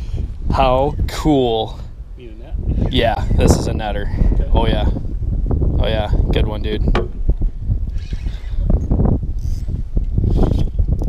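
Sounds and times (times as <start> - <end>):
wind buffeting microphone: 0.0 - 11.0
knocks: 6.9 - 7.3.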